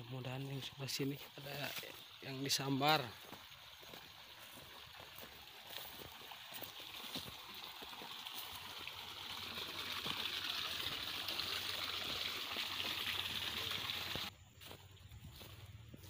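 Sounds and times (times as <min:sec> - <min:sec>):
water trickling in ditch: 0:00.0 - 0:16.0.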